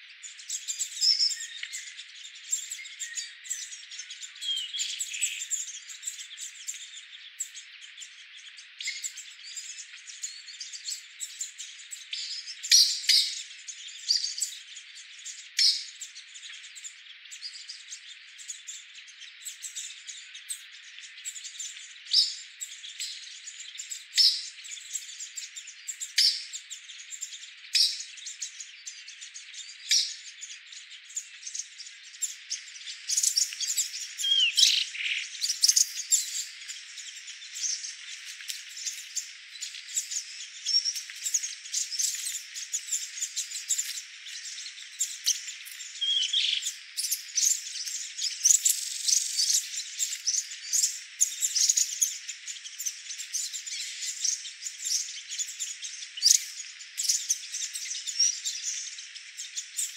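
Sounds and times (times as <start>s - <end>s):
birds chirping: 0.0s - 59.9s
high hiss of forest ambience: 31.1s - 59.9s.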